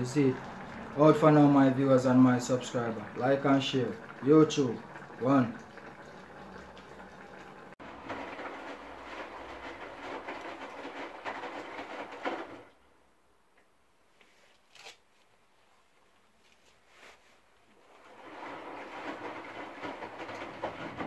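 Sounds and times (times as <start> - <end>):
pots simmering hiss: 0.0 - 12.2
washing machine drum tumbling: 18.0 - 21.0.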